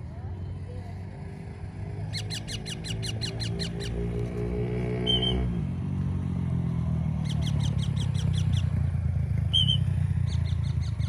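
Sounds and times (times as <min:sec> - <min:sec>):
low engine drone: 0:00.0 - 0:11.0
warbling whistle blasts: 0:05.0 - 0:05.4.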